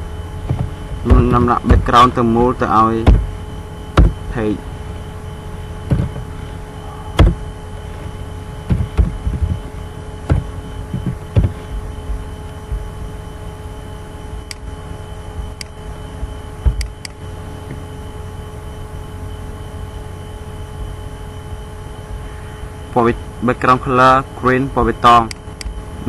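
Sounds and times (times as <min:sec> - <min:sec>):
electrical hum with whine: 0:00.0 - 0:26.0.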